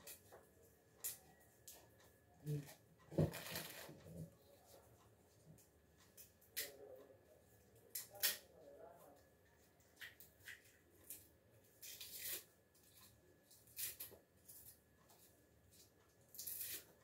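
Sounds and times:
garlic skins crackling and rustling: 16.3 - 17.0.

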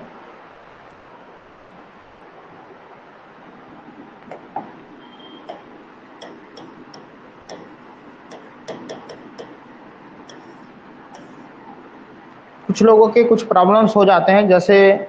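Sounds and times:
steady hiss: 0.0 - 15.0
stylus clicking on glass screen: 5.2 - 9.6.

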